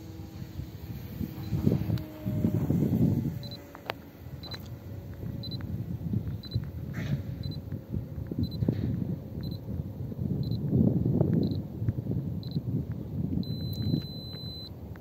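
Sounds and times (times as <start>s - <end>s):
wind rumble on microphone: 0.0s - 15.0s
high electronic beep: 13.4s - 14.7s.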